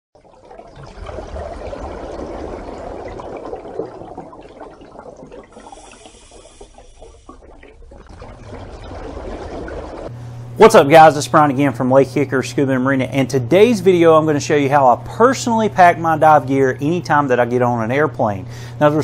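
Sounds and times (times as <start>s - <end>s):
watery wash: 0.2s - 10.1s.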